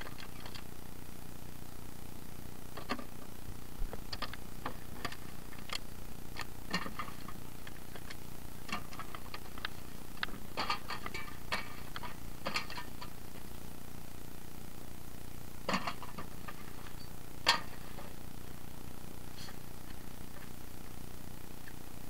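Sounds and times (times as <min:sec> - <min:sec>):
steady low background noise: 0:00.0 - 0:22.0
hard objects clicking and knocking: 0:06.4 - 0:13.2, 0:15.7 - 0:17.9.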